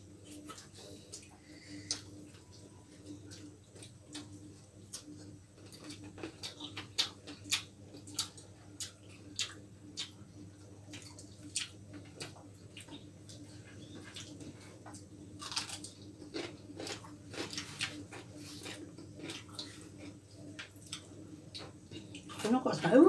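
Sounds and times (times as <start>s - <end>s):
low steady hum: 0.0s - 23.0s
mouth clicks and chewing smacks: 3.3s - 10.2s.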